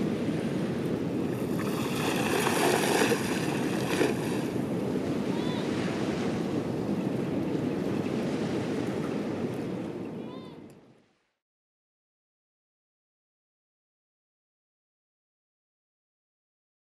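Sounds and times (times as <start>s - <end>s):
wind on microphone: 0.0s - 11.2s
water lapping: 1.0s - 6.4s.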